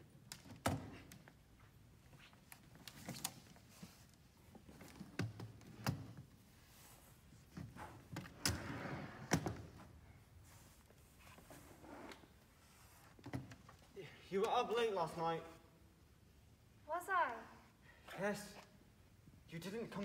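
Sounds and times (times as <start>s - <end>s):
scraping slide on wooden floor: 7.7s - 9.4s.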